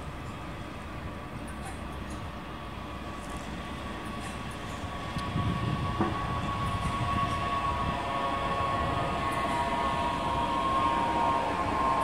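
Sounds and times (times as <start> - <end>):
electric train high whine: 0.0 - 12.0
train wheels rumbling on track: 0.0 - 12.0.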